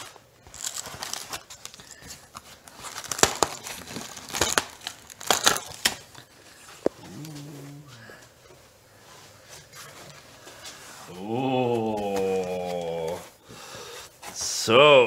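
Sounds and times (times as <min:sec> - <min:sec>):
plastic wrap crinkling and tearing: 0:00.0 - 0:07.9, 0:10.8 - 0:13.4.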